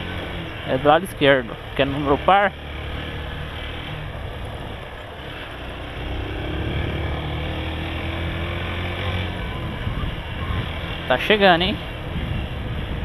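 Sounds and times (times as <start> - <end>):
motorcycle engine running: 0.0 - 11.1
wind rush on microphone: 9.2 - 13.0.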